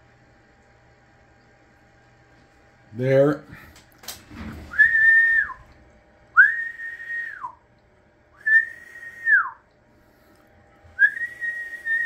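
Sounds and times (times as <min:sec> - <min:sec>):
man whistling sliding notes: 0:04.7 - 0:05.6, 0:06.4 - 0:07.6, 0:08.4 - 0:09.6, 0:11.0 - 0:12.0.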